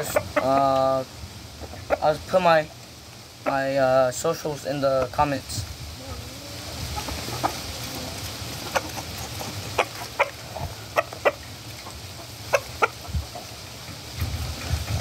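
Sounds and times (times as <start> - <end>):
rooster clucking: 0.0 - 1.0, 1.6 - 2.3, 3.4 - 3.9, 5.9 - 15.0.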